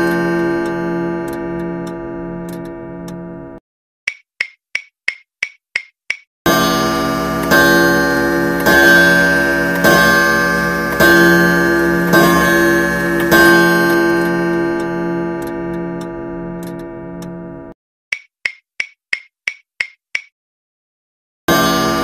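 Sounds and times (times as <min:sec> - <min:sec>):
ringing pitched tone strikes: 0:00.0 - 0:03.6, 0:06.5 - 0:17.7
faint clock ticks: 0:00.1 - 0:03.2, 0:04.1 - 0:06.2, 0:13.2 - 0:17.4.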